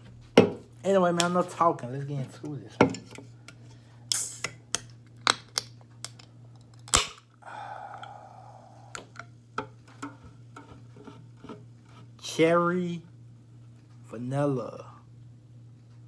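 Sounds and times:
soda can opening pop: 4.1 - 6.2, 6.9 - 7.3.

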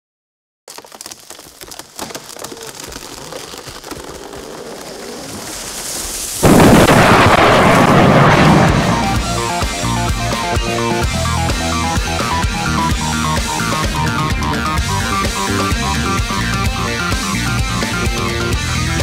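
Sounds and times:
wood creaking and snapping: 0.7 - 6.0
tree crashing down: 0.7 - 9.5.

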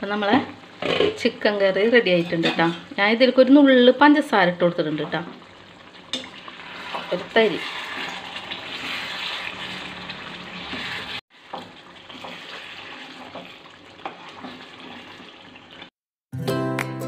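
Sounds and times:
spoon stirring and knocking pan: 0.3 - 1.3, 6.1 - 15.6
curry bubbling in a pan: 3.4 - 16.0.

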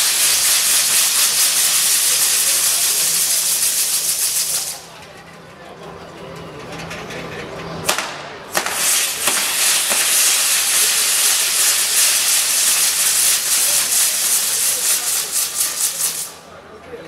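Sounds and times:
firework crack: 0.0 - 4.9, 7.8 - 16.4
firework fountain hissing: 0.0 - 5.0, 7.9 - 16.5.

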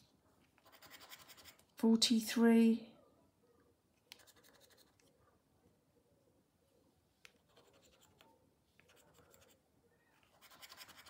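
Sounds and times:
scratch card being scratched: 0.6 - 1.7, 4.1 - 5.1, 7.4 - 9.6, 10.2 - 11.0.

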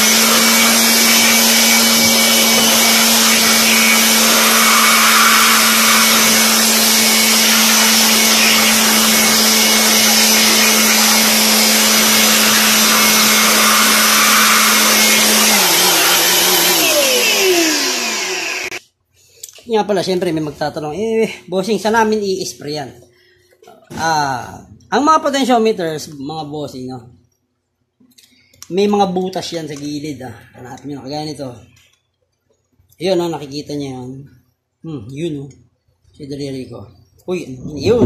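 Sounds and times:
electric blower running: 0.0 - 18.8.

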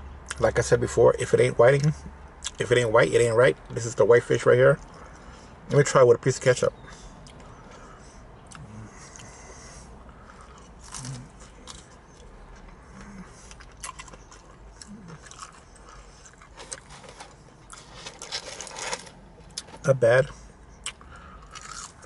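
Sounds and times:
person chewing food: 7.2 - 22.0
mouth smacks and clicks: 20.8 - 21.1.

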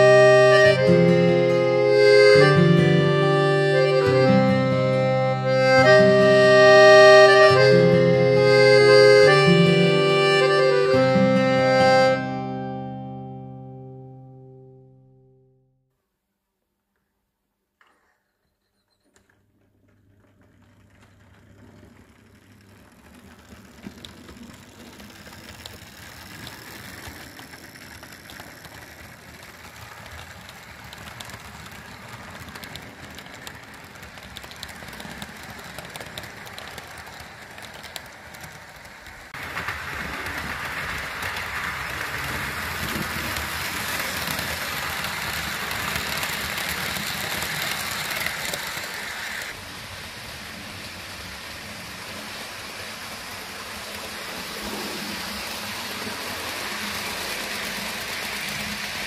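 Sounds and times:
wheels clicking over rail joints: 17.8 - 59.0
model train motor hum: 19.2 - 59.0.

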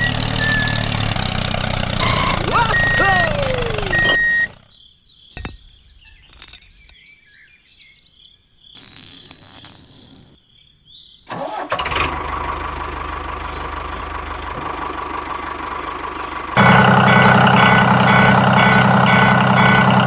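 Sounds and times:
engine starting and idling: 0.0 - 4.6, 11.3 - 20.0
birds chirping: 0.0 - 12.7, 13.4 - 20.0.

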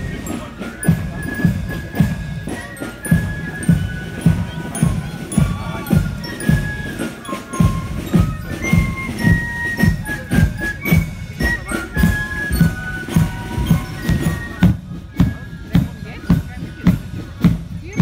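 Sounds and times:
marching band playing a march: 0.0 - 18.0.

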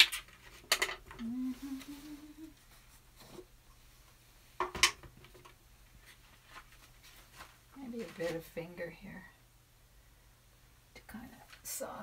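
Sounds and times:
woman humming: 1.1 - 2.6.

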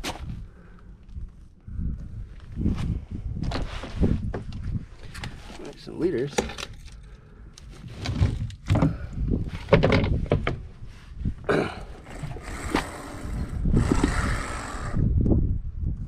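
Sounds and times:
wind buffeting microphone: 0.0 - 5.5, 8.0 - 16.0
knocks and thumps on boat deck: 9.6 - 10.6.

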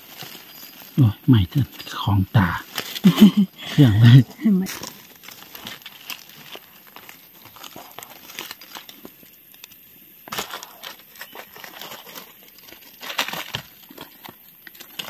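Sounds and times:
dry leaves rustling and crackling: 0.0 - 15.0.

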